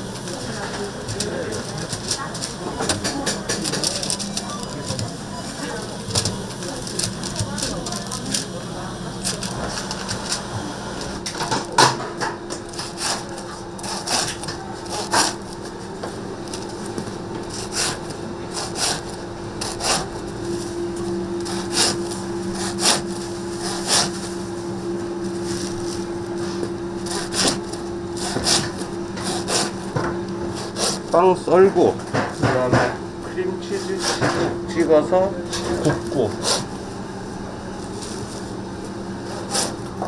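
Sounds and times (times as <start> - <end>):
steady machine hum: 0.0 - 40.0
bread knife sawing: 12.7 - 15.5, 17.4 - 20.3, 21.4 - 24.2, 26.4 - 31.2, 33.7 - 34.3, 35.8 - 36.8, 39.2 - 39.9.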